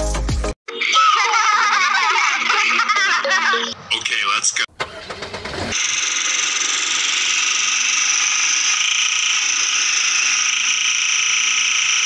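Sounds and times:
electric motor whining: 0:05.1 - 0:12.0.

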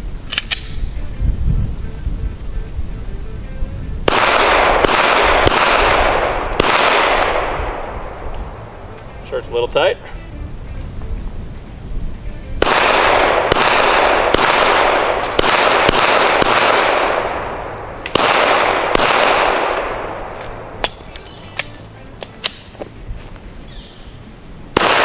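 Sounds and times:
pistol shots echoing: 0:04.1 - 0:08.6, 0:12.6 - 0:21.7, 0:24.8 - 0:25.0.

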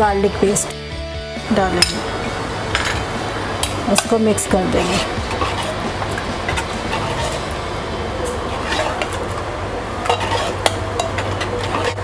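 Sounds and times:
steady low hum: 0:01.0 - 0:12.0
liquid swishing in pot: 0:04.8 - 0:12.0.

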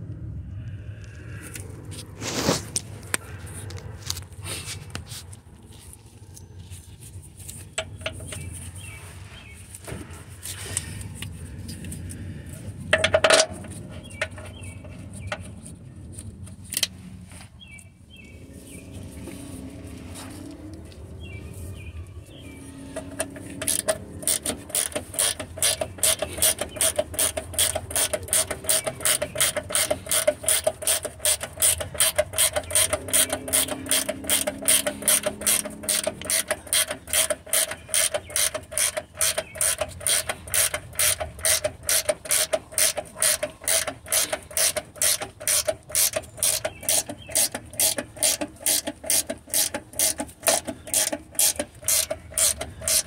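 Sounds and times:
ratcheting wrench clicking: 0:12.9 - 0:14.5, 0:23.0 - 0:53.0.

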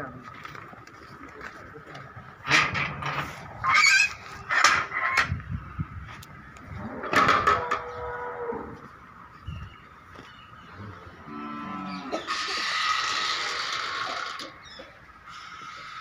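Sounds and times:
cattle mooing: 0:10.8 - 0:14.4.

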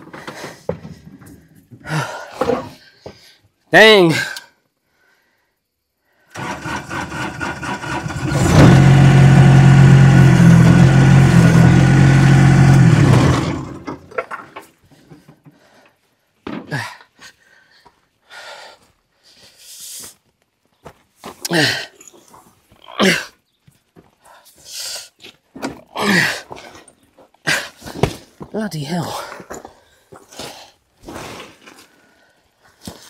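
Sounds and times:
digger engine running: 0:06.4 - 0:14.2.

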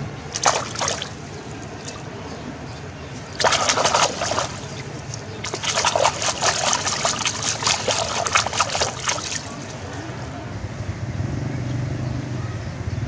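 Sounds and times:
fish thrashing and splashing in water: 0:00.3 - 0:09.9.

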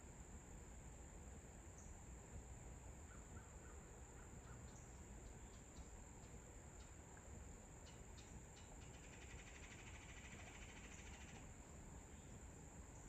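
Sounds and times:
high-pitched insect drone: 0:08.9 - 0:11.5.

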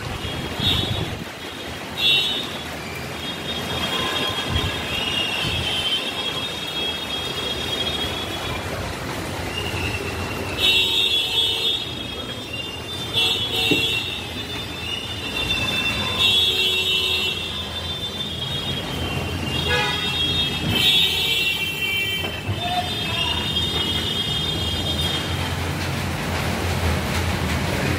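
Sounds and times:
road traffic noise: 0:00.0 - 0:27.9
high-pitched vehicle horns honking: 0:00.1 - 0:01.2, 0:03.5 - 0:08.4, 0:12.9 - 0:25.3.

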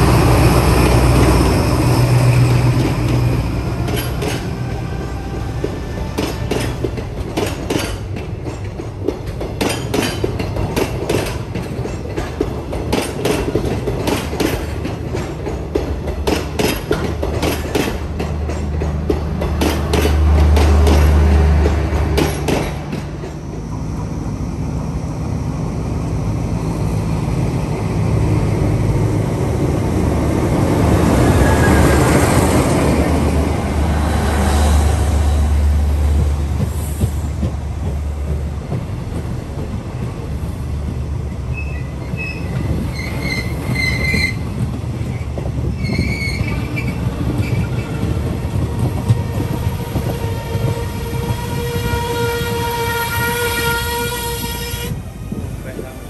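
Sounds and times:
train wheels rumbling on rail: 0:00.0 - 0:56.0
train horn: 0:03.6 - 0:06.9, 0:47.8 - 0:55.0
high-pitched wheel squeals: 0:41.5 - 0:44.4, 0:45.8 - 0:48.1.

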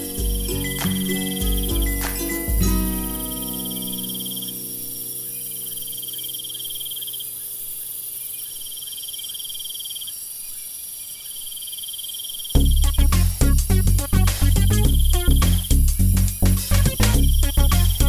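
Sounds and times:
loud music with a beat: 0:00.0 - 0:03.7, 0:12.6 - 0:18.0
low held chord: 0:00.0 - 0:07.0
cricket chirping: 0:00.0 - 0:13.0.

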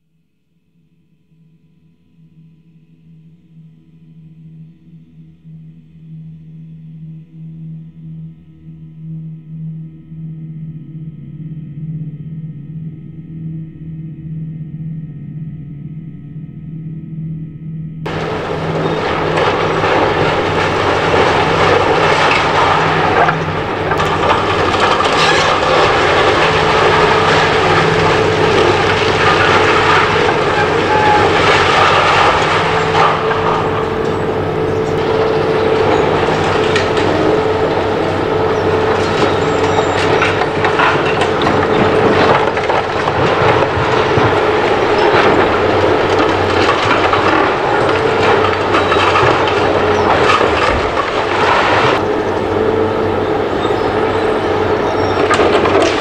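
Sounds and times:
excavator engine and hydraulics droning: 0:09.0 - 0:56.0
crashing of falling debris: 0:18.1 - 0:56.0.

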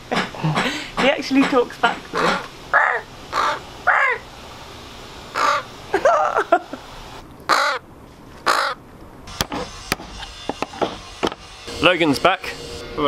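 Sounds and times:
young crow cawing: 0:02.1 - 0:04.3, 0:05.3 - 0:05.7, 0:07.5 - 0:08.8.

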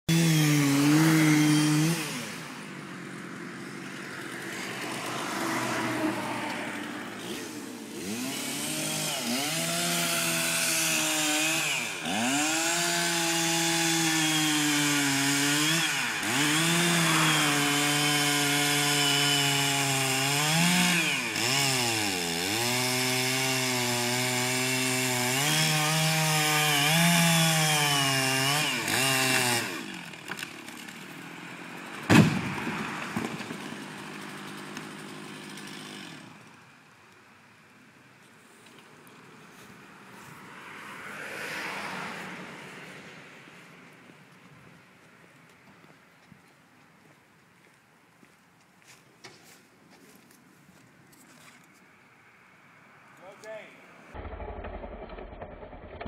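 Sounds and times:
chainsaw cutting wood: 0:00.1 - 0:36.7, 0:53.2 - 0:56.0.

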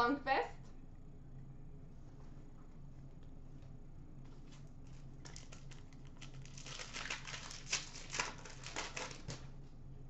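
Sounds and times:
faint low hum: 0:00.0 - 0:10.0
wrapper tearing and crinkling: 0:05.3 - 0:09.4.

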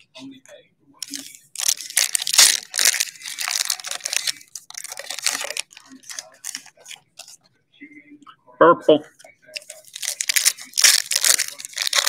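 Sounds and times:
foil wrapper tearing and crinkling: 0:01.0 - 0:07.4, 0:09.6 - 0:12.0.

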